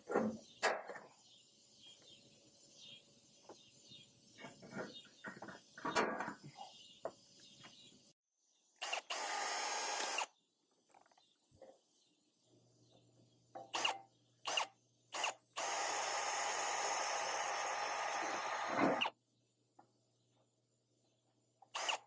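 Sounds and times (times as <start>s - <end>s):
cordless drill drilling: 8.8s - 10.3s, 14.5s - 19.1s, 21.8s - 22.0s.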